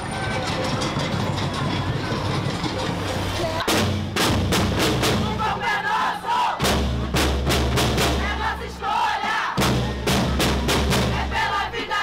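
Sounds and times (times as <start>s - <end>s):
marching snare drums: 0.2s - 12.0s
women chanting: 5.2s - 6.6s, 8.1s - 9.6s, 11.0s - 12.0s.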